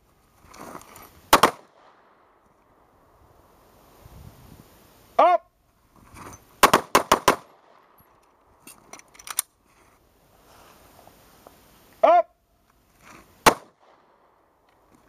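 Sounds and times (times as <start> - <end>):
pistol gunshots: 1.3 - 2.0, 6.6 - 7.8, 13.4 - 14.1
person shouting: 5.2 - 5.5, 12.0 - 12.4.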